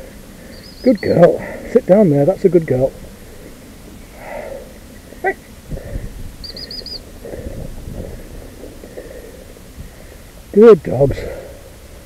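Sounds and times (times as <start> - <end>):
bird chirps: 0.0 - 1.4, 4.9 - 7.5
low rumbling: 0.0 - 12.0.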